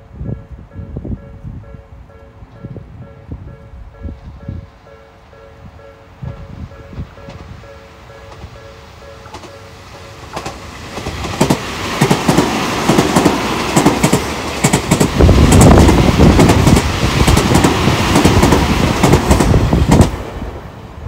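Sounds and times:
electric train passing at speed: 0.0 - 21.0
wheels clacking over rail joints: 9.2 - 20.3.

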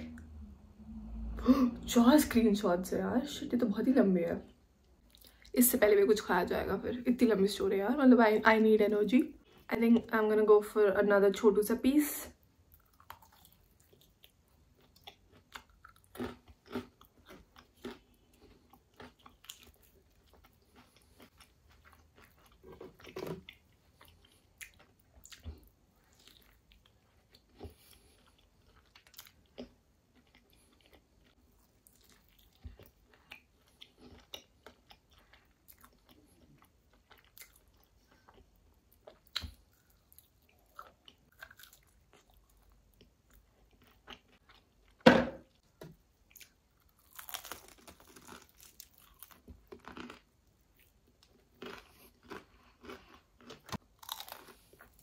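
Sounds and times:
crunching fried chicken: 12.7 - 44.9, 46.4 - 55.0.

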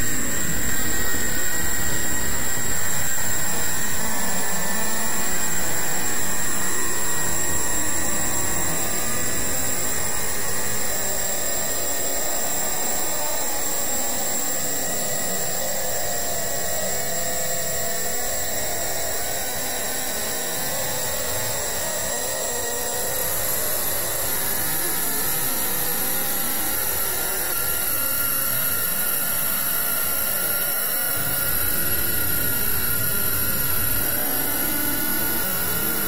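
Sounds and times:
steady rushing noise: 31.2 - 36.0.

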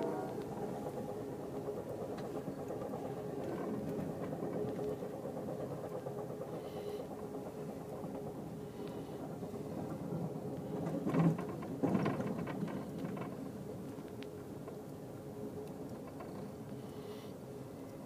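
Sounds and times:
faint steady hum: 0.0 - 18.0
moving train rumble: 0.0 - 18.0.

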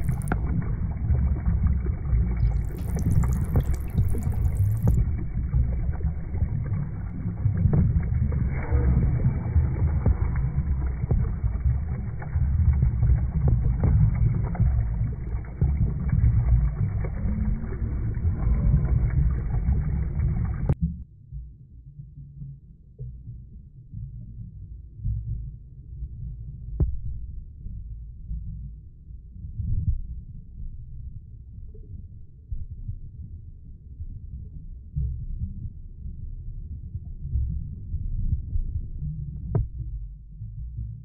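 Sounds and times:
muffled underwater rushing: 0.0 - 20.8
low throb: 0.0 - 30.7.

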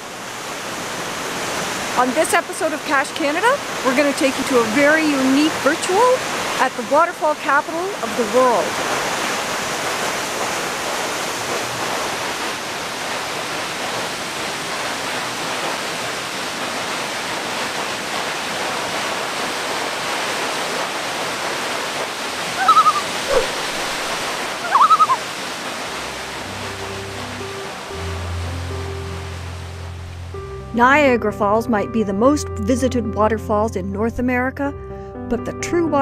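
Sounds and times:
waterfall rushing: 0.0 - 30.3
short pitched calls: 22.6 - 24.0, 24.6 - 25.2.

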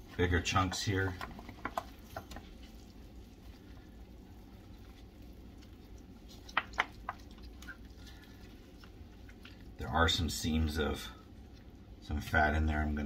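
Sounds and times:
wet squishing of meat tearing: 0.0 - 10.3
steady low hum: 0.0 - 13.0.

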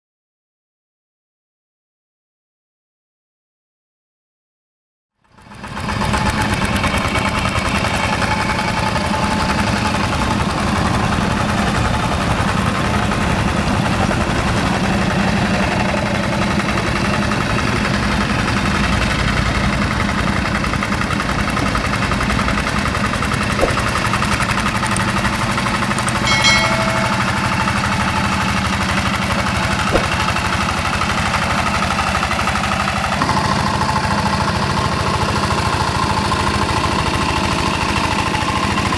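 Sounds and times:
diesel engine running: 5.4 - 38.9
ringing metallic clink: 23.6 - 31.0.

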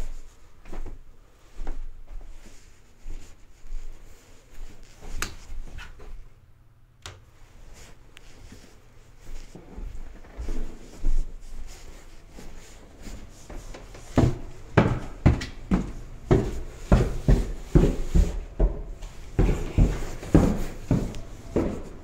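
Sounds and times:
footsteps on wooden stairs: 8.3 - 22.0.

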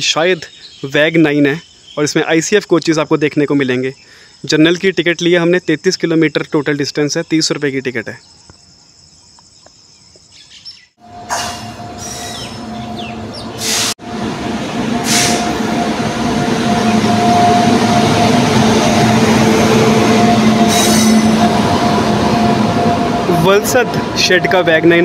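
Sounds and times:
locomotive whine: 11.0 - 25.0
train wheels rumbling on rail: 11.0 - 25.0.

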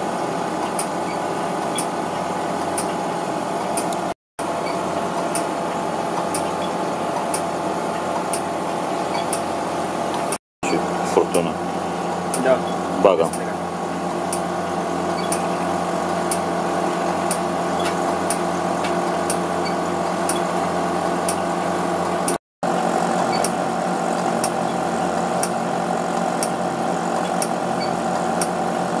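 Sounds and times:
machine hum of fans and pumps: 0.0 - 29.0.

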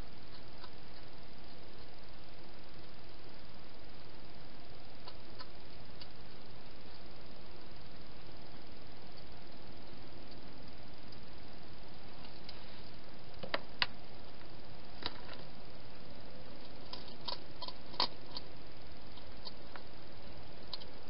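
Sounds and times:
steady hiss: 0.0 - 21.0
hedgehog eating clicks and crunches: 16.6 - 18.5.

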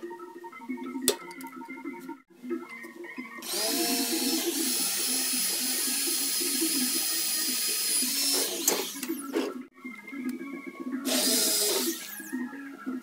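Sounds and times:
power tool motor whirring: 3.4 - 9.3, 11.1 - 12.3.

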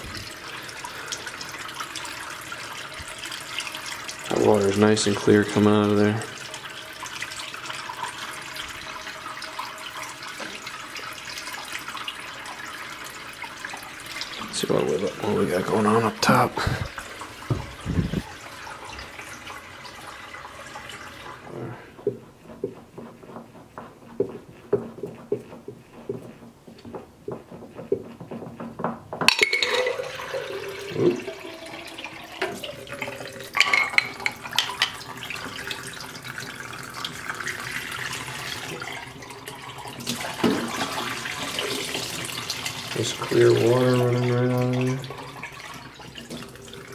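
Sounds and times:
glass clinks: 29.3 - 30.0
water pouring into glass: 29.3 - 46.9.

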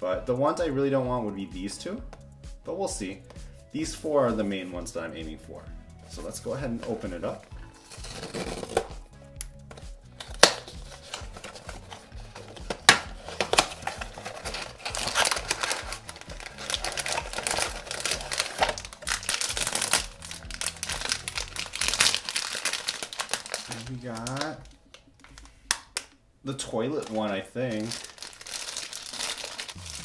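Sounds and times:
cardboard box tearing: 7.8 - 8.9, 10.4 - 24.5
card snapping: 8.4 - 20.2
foil bag crinkling: 10.2 - 26.1, 26.9 - 30.0.

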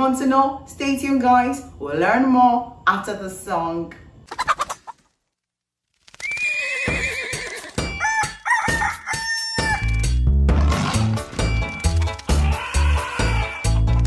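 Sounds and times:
rooster crowing: 6.2 - 10.0.

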